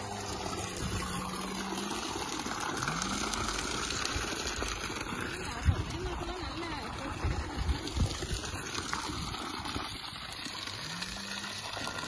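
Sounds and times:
water gushing from pipe: 0.0 - 12.0.

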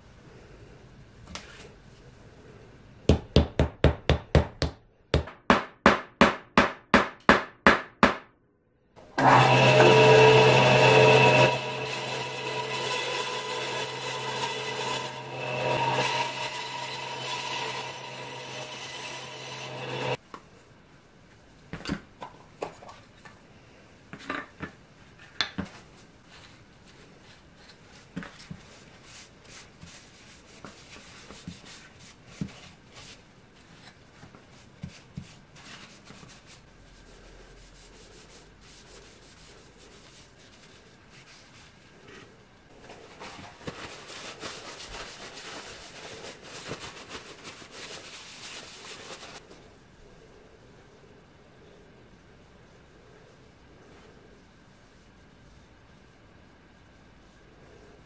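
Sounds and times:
bandsaw running: 9.0 - 20.2
cloth rubbing on wood: 43.0 - 49.5.

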